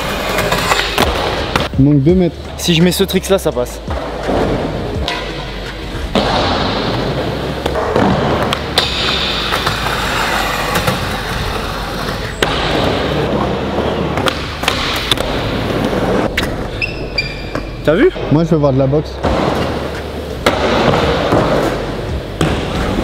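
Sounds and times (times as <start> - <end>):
skateboard wheels rolling on wood: 0.0 - 1.7, 5.6 - 17.2.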